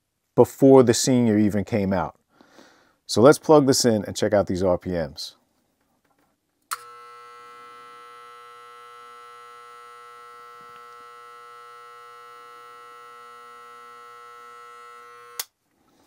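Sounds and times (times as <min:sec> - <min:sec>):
electric hair clipper buzzing: 0:06.7 - 0:15.5.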